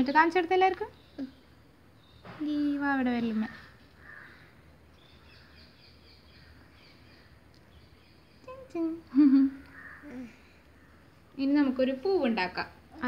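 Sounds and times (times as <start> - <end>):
faint high bird chirps: 0.8 - 11.2.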